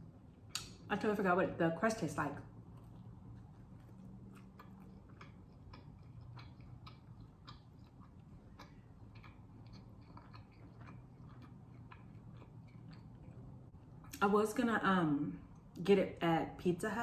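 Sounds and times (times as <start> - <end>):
low steady hum: 0.0 - 17.0
soft chewing clicks: 2.5 - 14.3.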